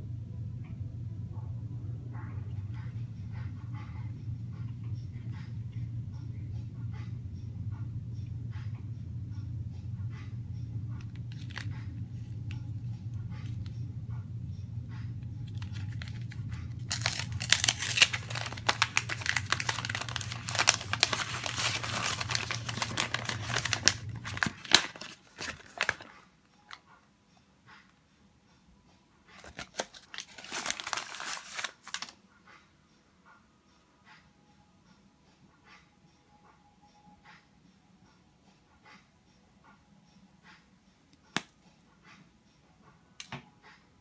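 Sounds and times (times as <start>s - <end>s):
steady low hum: 0.0s - 32.0s
wrapper crinkling and tearing: 11.1s - 11.7s, 15.5s - 26.1s, 29.4s - 32.2s
handling rustles: 15.5s - 26.1s, 29.4s - 32.1s.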